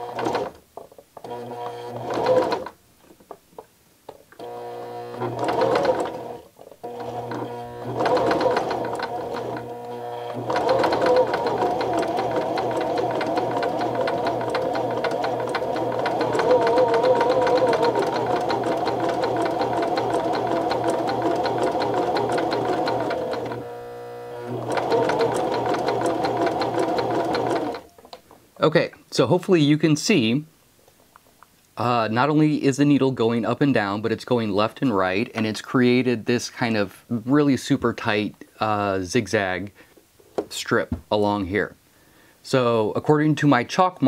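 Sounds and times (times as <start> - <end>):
sewing machine running: 0.0 - 0.6, 1.2 - 2.7, 4.4 - 27.9.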